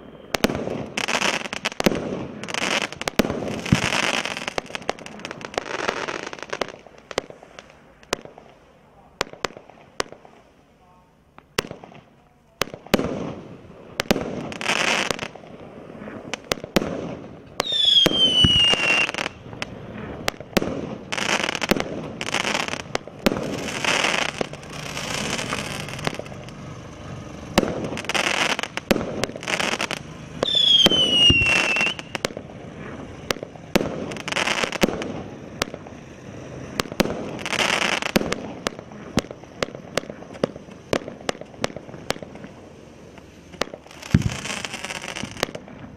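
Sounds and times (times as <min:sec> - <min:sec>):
whistling firework descending: 0:00.0 - 0:07.0, 0:17.6 - 0:26.5, 0:27.5 - 0:36.0
firework launch pops and bursts: 0:00.0 - 0:10.6, 0:11.4 - 0:45.9
fireworks hissing and crackling: 0:00.0 - 0:45.9.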